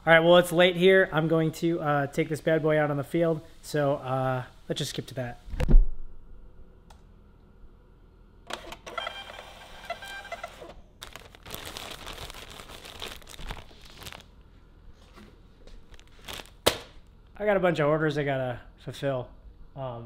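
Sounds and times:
plastic bag crinkling: 11.0s - 14.4s, 15.8s - 17.0s.

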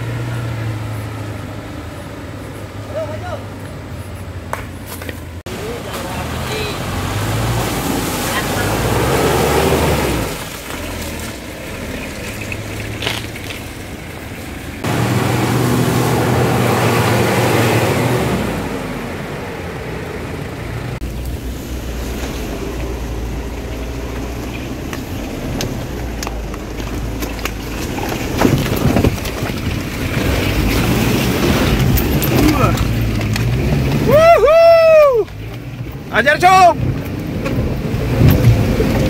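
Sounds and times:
knocks and rattles over rough ground: 0.0s - 7.4s, 9.8s - 15.0s, 20.9s - 34.2s, 35.0s - 39.0s
diesel engine running: 0.0s - 36.2s.

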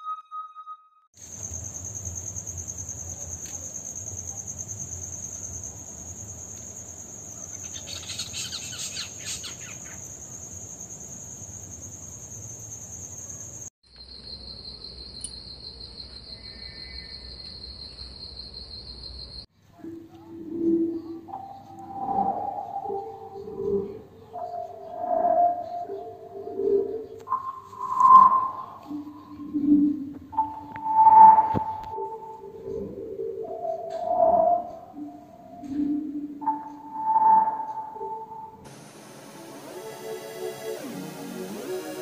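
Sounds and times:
lower-pitched trill: 0.0s - 1.1s, 34.2s - 42.0s
crickets trilling: 1.2s - 19.5s, 38.7s - 42.0s.

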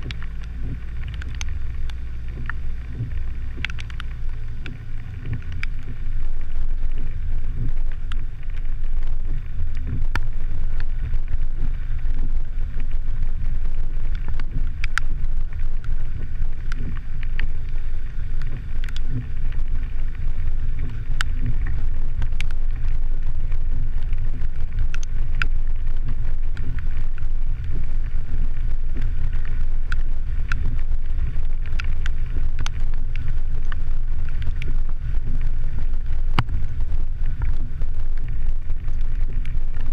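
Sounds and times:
sharp ticks: 0.0s - 2.6s
vehicle rumble on gravel road: 0.0s - 39.9s.

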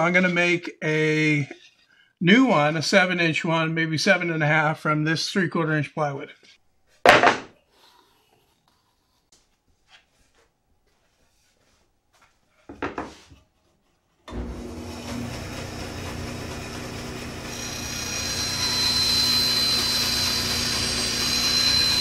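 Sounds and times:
band saw running: 14.3s - 22.0s
saw blade whining through wood: 14.3s - 22.0s.

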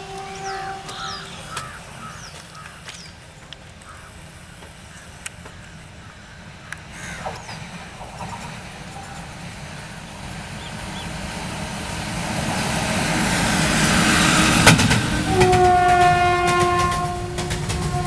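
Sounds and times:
locomotive horn blast: 0.0s - 2.2s, 13.3s - 18.0s
rail-joint clicks: 0.0s - 4.0s, 4.6s - 12.5s, 13.2s - 18.0s
train wheels rumbling: 0.0s - 18.0s.

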